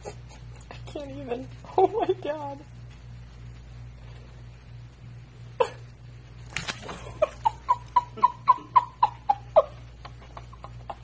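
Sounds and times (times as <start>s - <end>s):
screech owl hooting: 7.3s - 9.9s.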